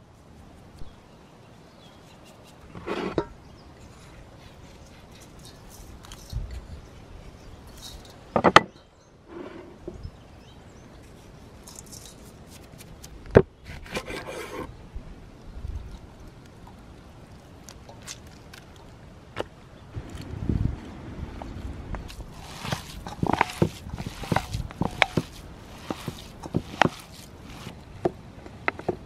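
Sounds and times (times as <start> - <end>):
knife scraping in a steel bowl: 2.0 - 6.4, 22.1 - 27.8.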